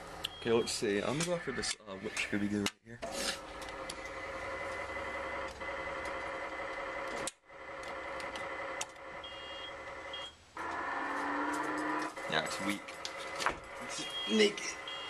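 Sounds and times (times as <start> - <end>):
claw machine buzzing tone: 7.8 - 15.0
short high beeps: 14.0 - 15.0.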